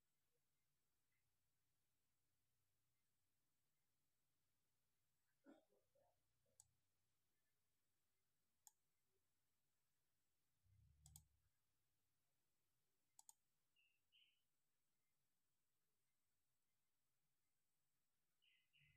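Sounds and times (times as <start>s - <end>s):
computer mouse clicks: 11.0s - 11.3s, 13.2s - 13.4s.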